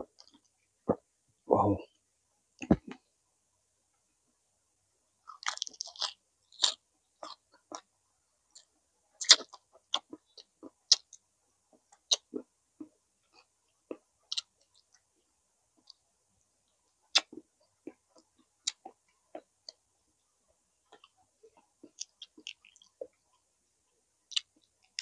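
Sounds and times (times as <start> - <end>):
chewing and biting crunches: 5.3 - 7.9, 8.6 - 11.2.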